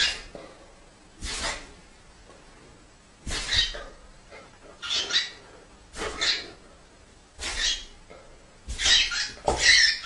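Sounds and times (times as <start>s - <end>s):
bird squawking harshly: 3.3s - 3.9s, 4.8s - 5.4s, 6.0s - 6.6s, 7.4s - 7.9s, 8.7s - 10.0s.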